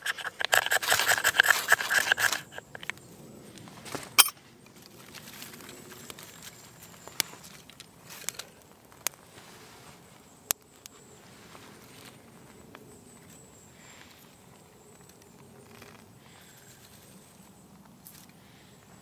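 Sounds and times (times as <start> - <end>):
faint steady hiss: 2.9 - 19.0
small fire crackling and popping: 5.0 - 11.0.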